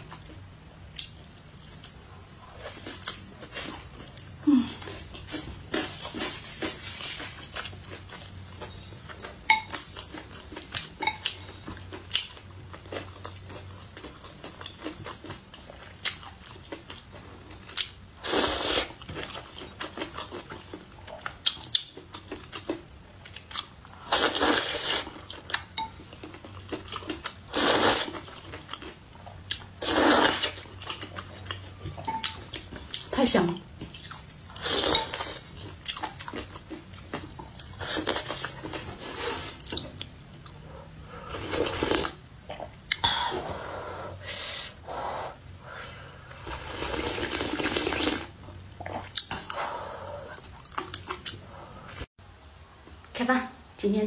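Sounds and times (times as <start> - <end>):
loud noodle slurps: 27.5 - 28.2, 29.8 - 30.6, 46.4 - 48.3.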